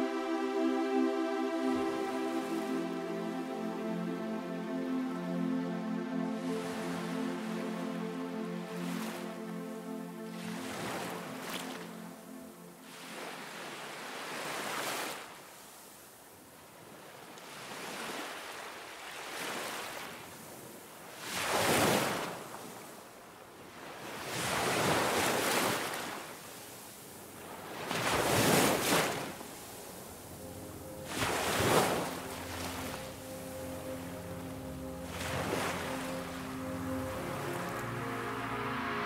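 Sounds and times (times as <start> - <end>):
ocean waves breaking: 6.3 - 15.4, 23.8 - 39.0.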